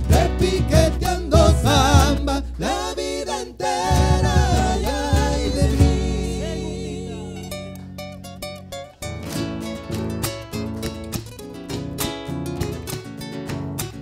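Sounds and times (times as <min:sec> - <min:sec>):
vocal group singing in harmony: 0:00.0 - 0:07.9
bass drum beats: 0:00.0 - 0:08.0
acoustic guitars: 0:00.0 - 0:14.0.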